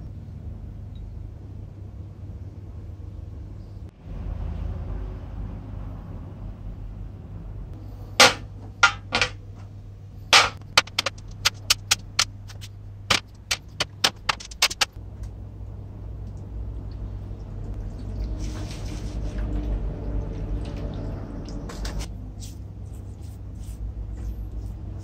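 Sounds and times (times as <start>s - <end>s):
steady low hum: 0.0s - 25.0s
liquid pouring: 17.0s - 22.0s.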